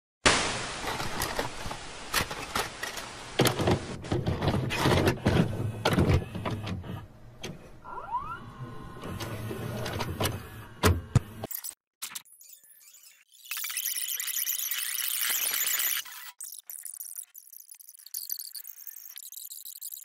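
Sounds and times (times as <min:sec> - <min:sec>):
tv static hiss: 0:00.3 - 0:04.0
tape mechanism clicking and clunking: 0:02.1 - 0:07.7.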